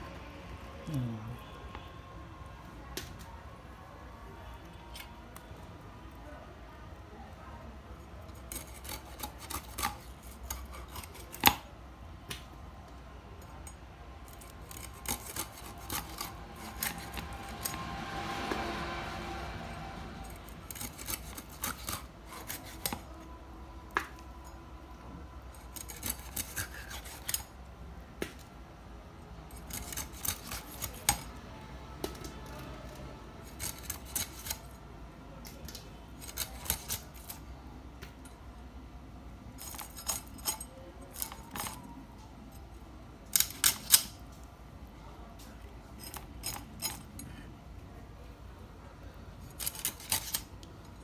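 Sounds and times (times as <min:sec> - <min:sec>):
fish scraped against steel blade: 0:08.3 - 0:11.6, 0:14.3 - 0:17.9, 0:20.4 - 0:23.1, 0:25.6 - 0:27.5, 0:29.5 - 0:31.3, 0:33.4 - 0:34.7, 0:36.2 - 0:37.4, 0:49.5 - 0:50.5.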